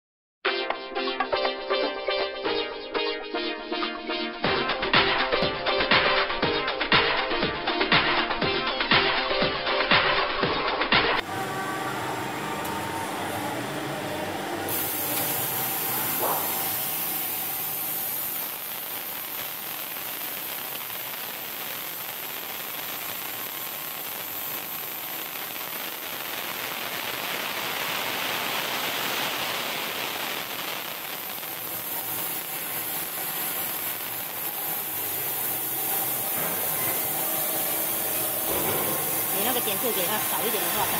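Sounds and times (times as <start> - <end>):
machine noise: 11.1 - 40.9
laser cutting hiss: 11.2 - 40.9.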